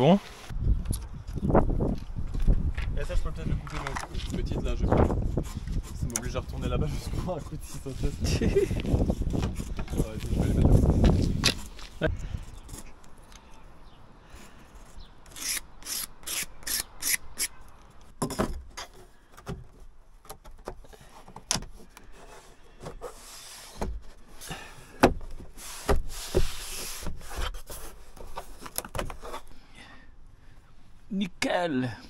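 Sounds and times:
wooden panel rubbing and scraping: 3.7s - 12.0s, 18.2s - 29.5s.

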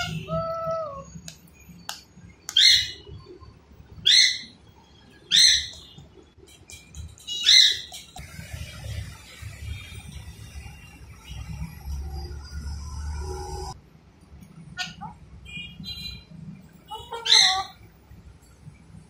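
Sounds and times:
parakeet squawking: 14.8s - 15.2s, 17.0s - 17.8s.

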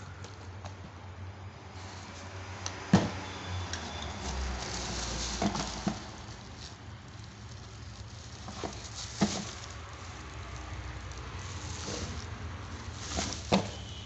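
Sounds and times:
bubble wrap crinkling: 1.7s - 2.5s, 3.2s - 14.0s
cardboard box rustling: 4.1s - 14.0s.

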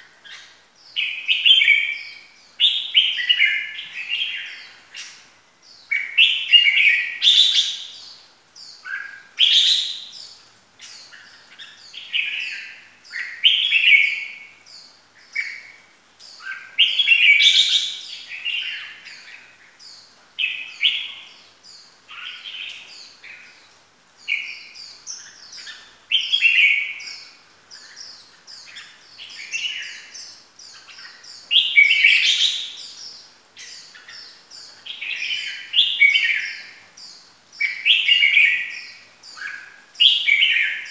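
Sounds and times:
high bird chirps: 0.0s - 23.6s
bird singing warbling phrases: 0.0s - 40.9s.

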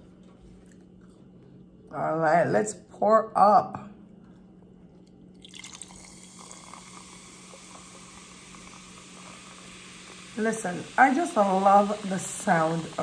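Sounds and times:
fizzing hiss of bubbles: 5.4s - 13.0s
sparkling water pouring into glass: 5.4s - 13.0s.

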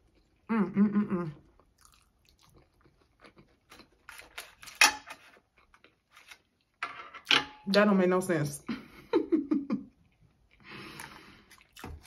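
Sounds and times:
close chewing and mouth sounds: 0.0s - 6.7s, 9.9s - 12.0s.

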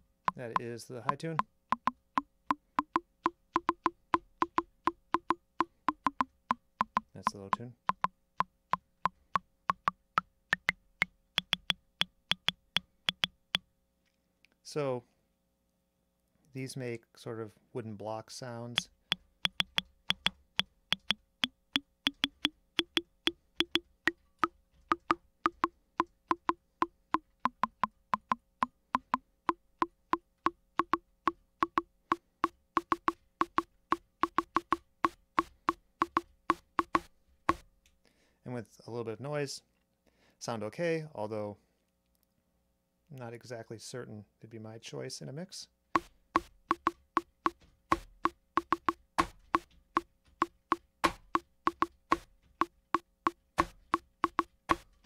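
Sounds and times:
analog drum machine wood-block hits: 0.0s - 13.6s, 18.8s - 37.6s, 46.0s - 54.9s.

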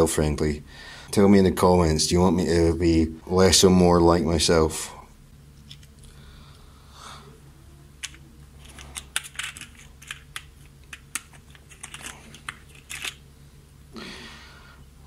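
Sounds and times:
plastic parts clicking: 8.0s - 13.2s.

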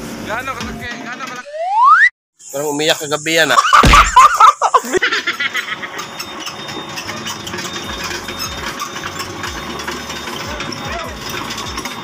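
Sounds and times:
metallic clinking rattle: 5.5s - 12.0s
excavator diesel engine running: 5.9s - 12.0s.

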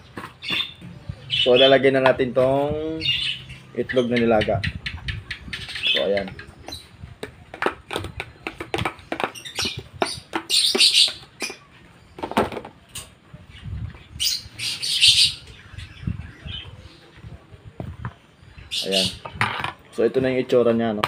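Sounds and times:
birds chirping: 0.0s - 21.0s
harsh bird calls: 0.0s - 21.0s.

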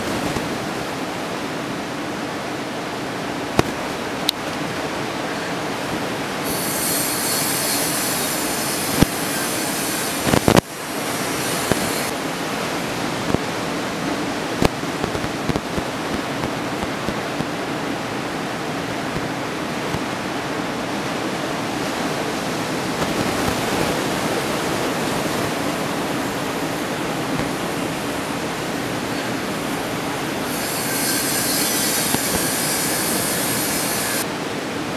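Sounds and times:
ocean surf breaking: 0.0s - 34.9s
thin high hiss: 6.4s - 12.1s, 30.4s - 34.2s.

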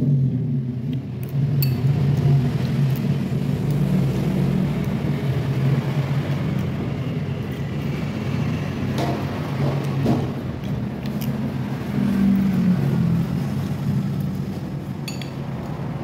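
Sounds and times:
cutlery clicking on ceramic bowl: 15.1s - 15.4s.

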